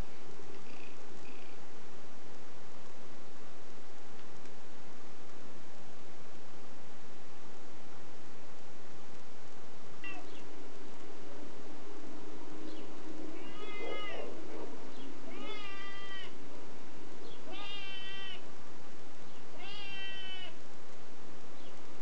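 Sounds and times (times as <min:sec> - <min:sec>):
cat meowing: 0:10.0 - 0:10.4, 0:13.3 - 0:14.4, 0:15.2 - 0:16.4, 0:17.4 - 0:18.4, 0:19.5 - 0:20.6.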